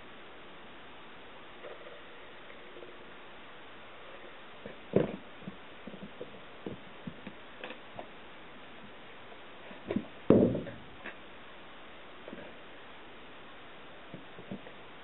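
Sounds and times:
loud thumps: 4.9s - 7.3s, 9.8s - 11.1s.

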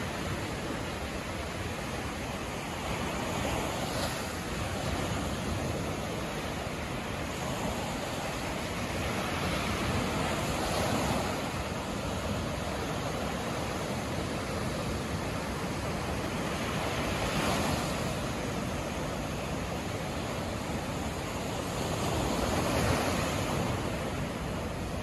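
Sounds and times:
small waves breaking on sandy beach: 0.0s - 25.0s.

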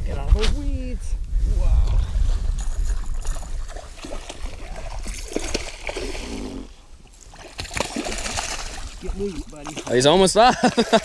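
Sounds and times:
wind rumble on microphone: 0.0s - 6.7s
fish splashing in water: 2.9s - 10.1s.

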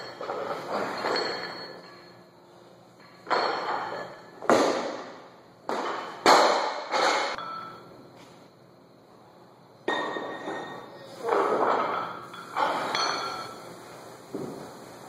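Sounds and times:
barbells thudding onto floor: 3.2s - 7.6s.

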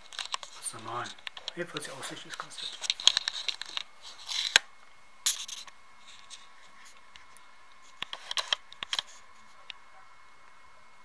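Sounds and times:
curtain fabric rustling: 0.0s - 4.6s.

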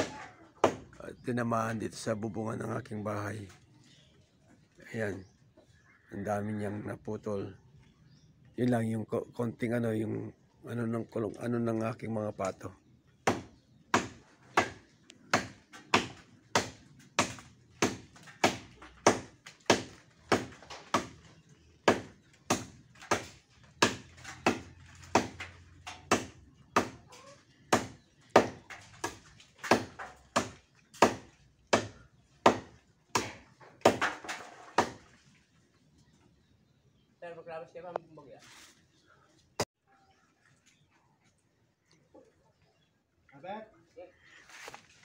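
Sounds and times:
blade chopping tree branch: 0.0s - 0.9s, 13.2s - 27.1s, 27.7s - 35.2s.

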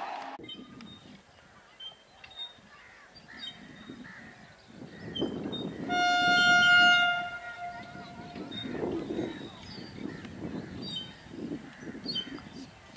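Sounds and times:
bird calls: 0.4s - 12.8s
approaching train rumble: 5.4s - 10.6s
locomotive horn blast: 5.8s - 9.0s.

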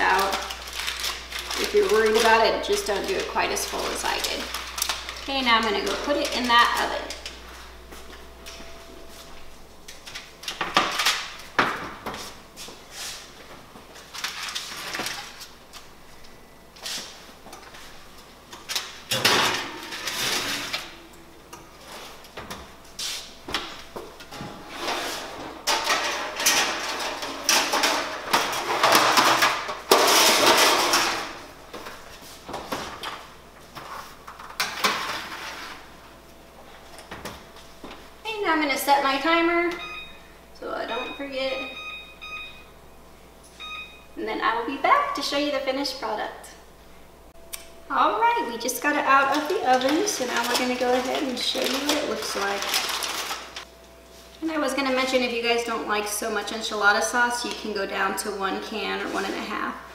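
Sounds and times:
metal oven racks sliding: 24.3s - 29.4s
baking pans clattering: 24.3s - 31.5s.

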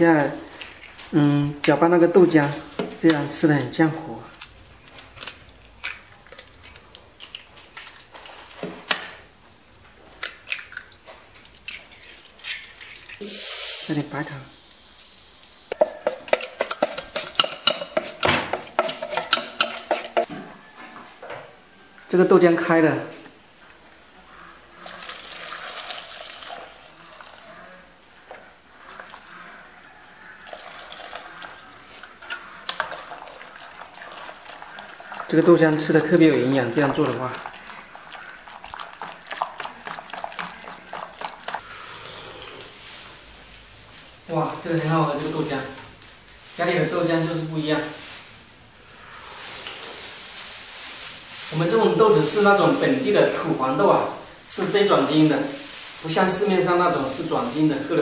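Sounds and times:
eggs cracking on metal bowl: 15.4s - 20.3s
liquid poured into a steel pot: 24.8s - 27.4s, 30.4s - 31.7s, 32.6s - 41.7s.

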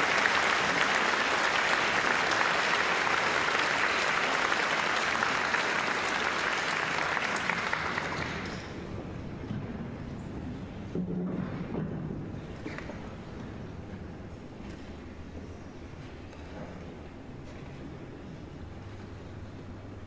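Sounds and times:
audience applauding: 0.0s - 8.8s.

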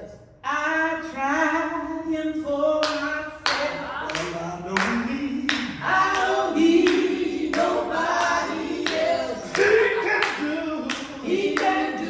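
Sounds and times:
women singing gospel song: 0.4s - 12.0s
hand claps on the beat: 2.8s - 12.0s.

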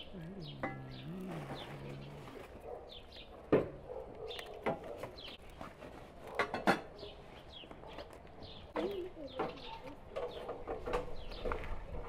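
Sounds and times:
small birds chirping: 0.0s - 6.0s, 6.9s - 12.0s.

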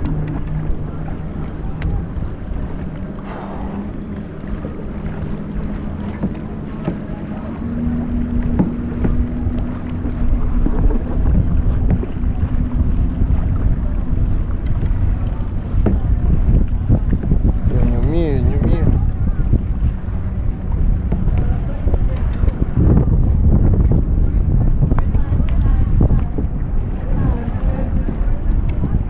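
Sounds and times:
steady low hum: 0.0s - 8.5s
paddle splashes: 0.0s - 29.0s
water lapping against kayak: 0.0s - 29.0s
wind buffeting microphone: 0.0s - 29.0s.

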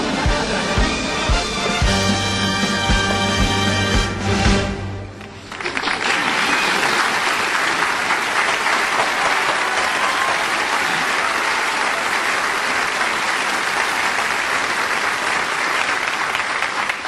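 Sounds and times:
crowd applauding: 5.1s - 17.0s.

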